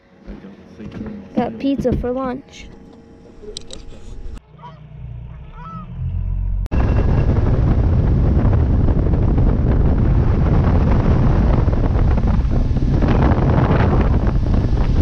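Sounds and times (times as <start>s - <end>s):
low hum: 0.0s - 15.0s
geese honking: 4.4s - 6.0s
wind buffeting microphone: 6.7s - 15.0s.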